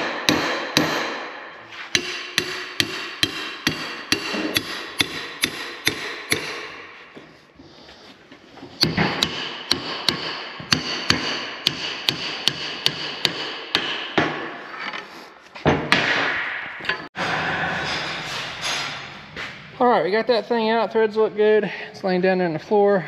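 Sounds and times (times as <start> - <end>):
hammer striking steel: 0.0 - 7.1, 8.8 - 14.7
loud noisy stretch: 17.2 - 19.8.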